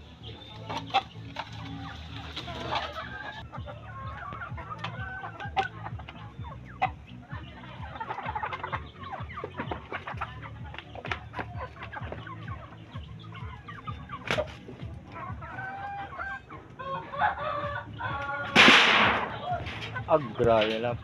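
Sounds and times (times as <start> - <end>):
roosters clucking: 0.0 - 21.0
sharp crack: 18.5 - 20.0.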